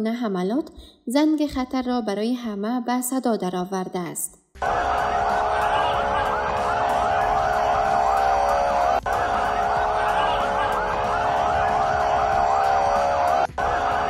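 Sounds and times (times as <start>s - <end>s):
ambulance sirens wailing: 4.6s - 14.0s
street traffic noise: 4.6s - 14.0s.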